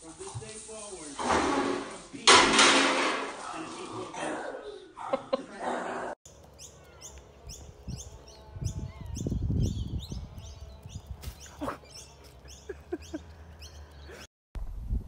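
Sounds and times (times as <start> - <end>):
bird chirping: 6.3 - 14.3.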